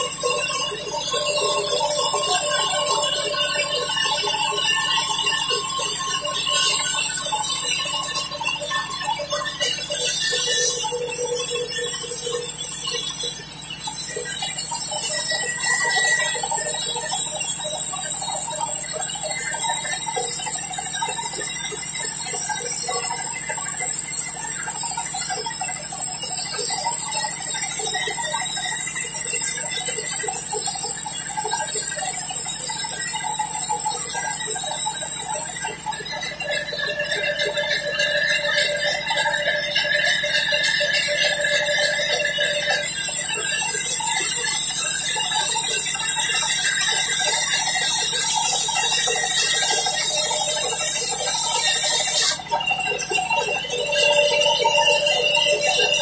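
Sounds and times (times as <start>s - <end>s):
band saw cutting wood: 43.8s - 52.5s.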